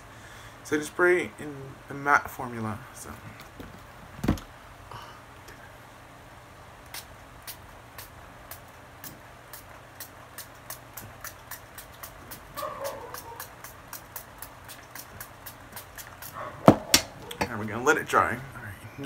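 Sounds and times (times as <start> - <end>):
thump: 4.2 - 4.5, 16.6 - 17.2
spray bottle hissing puffs: 6.9 - 16.4.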